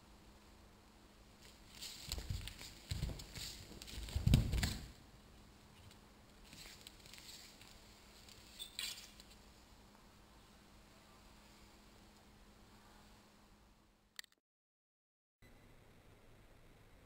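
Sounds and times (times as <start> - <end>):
cloth rustling: 1.4 - 5.0
shuffling footsteps: 1.4 - 5.0.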